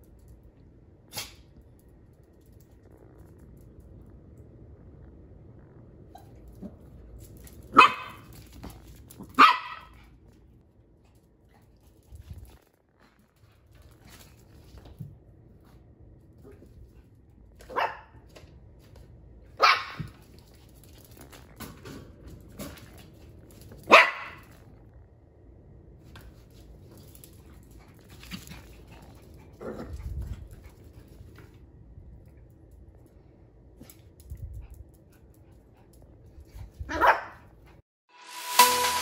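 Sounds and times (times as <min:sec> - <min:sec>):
small dog barking: 0:07.7 - 0:08.3, 0:09.3 - 0:10.0, 0:17.7 - 0:18.2, 0:19.6 - 0:20.1, 0:23.9 - 0:24.4, 0:36.9 - 0:37.4.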